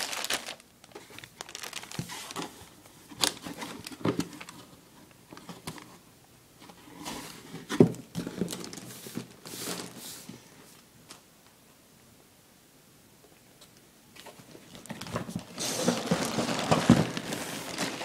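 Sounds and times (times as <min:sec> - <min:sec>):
plastic bags rustling: 0:00.0 - 0:06.0, 0:07.1 - 0:10.1, 0:14.2 - 0:18.0.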